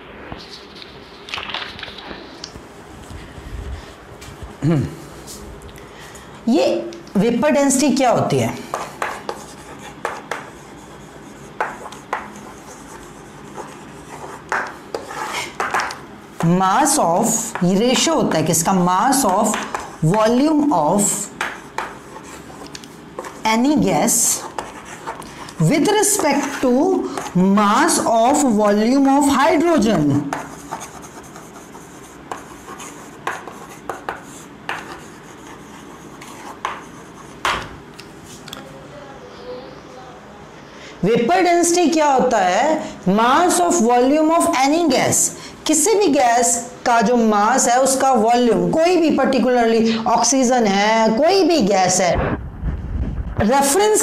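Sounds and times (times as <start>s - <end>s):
chalk scratching on chalkboard: 8.7s - 18.2s, 18.9s - 37.6s.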